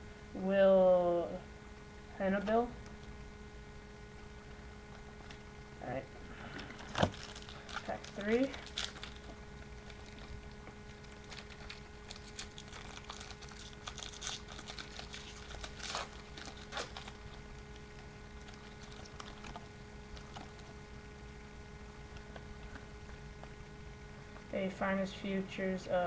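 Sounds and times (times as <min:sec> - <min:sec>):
cards rustling: 0:06.6 - 0:20.8
foil wrapper tearing and crinkling: 0:06.8 - 0:20.8.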